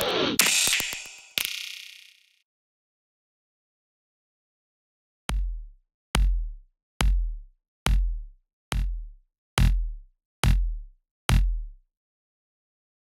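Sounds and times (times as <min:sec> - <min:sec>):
electronic kick drum hits: 0:05.3 - 0:11.8.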